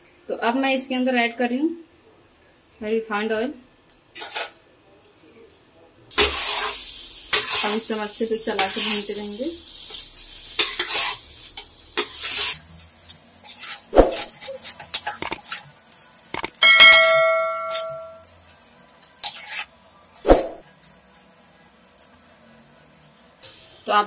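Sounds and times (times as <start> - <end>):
metal spatula scraping a pan: 4.2 - 4.6, 6.2 - 7.9, 8.5 - 9.3, 10.6 - 21.4
frying sizzle: 6.1 - 24.0
bell-like ding: 16.6 - 18.3.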